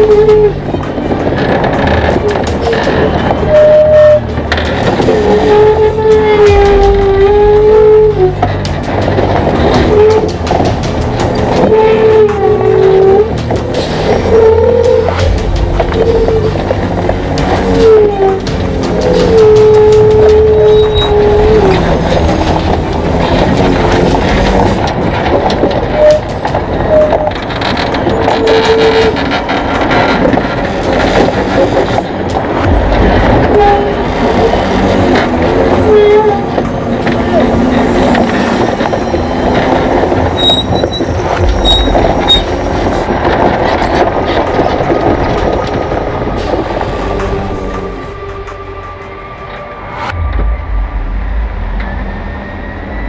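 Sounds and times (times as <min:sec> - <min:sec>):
tyres rumbling on gravel: 0:00.0 - 0:48.6
chains and trailer clanking: 0:00.0 - 0:51.1
truck chassis rattling: 0:00.0 - 0:51.4
short high squeaks: 0:40.3 - 0:42.6.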